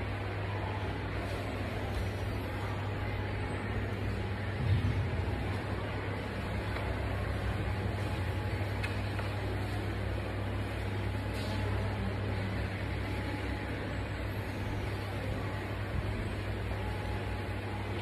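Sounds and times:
low electrical hum: 0.0s - 18.0s.

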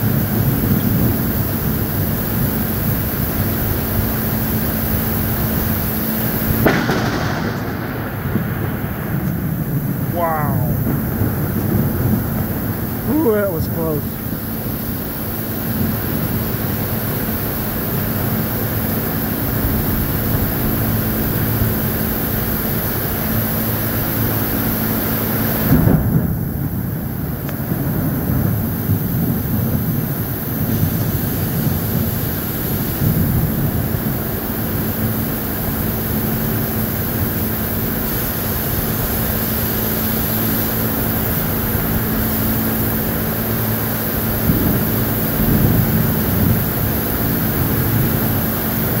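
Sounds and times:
low rumbling: 0.0s - 36.1s
heavy rain and wind: 0.0s - 49.0s.

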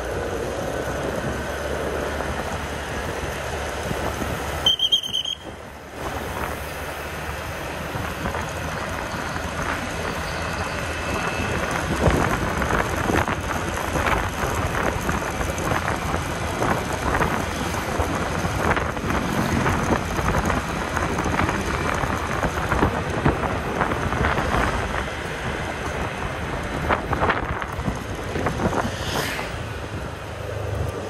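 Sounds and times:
road noise: 0.0s - 31.0s
wind buffeting microphone: 10.8s - 31.0s.

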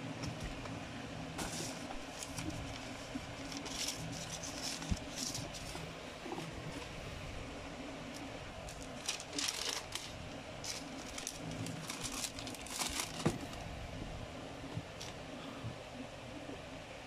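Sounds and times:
tissue paper crinkling: 1.4s - 6.9s, 8.6s - 13.6s.

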